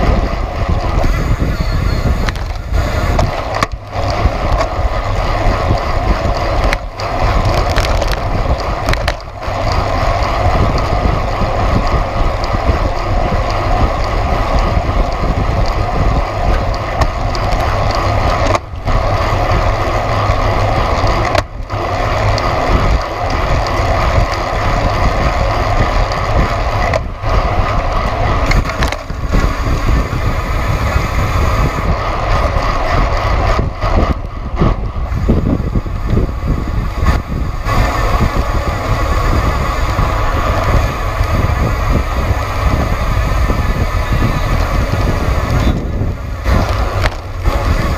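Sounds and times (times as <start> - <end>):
bike tyres rolling on asphalt: 0.0 - 47.9
wind rushing over microphone: 0.0 - 47.9.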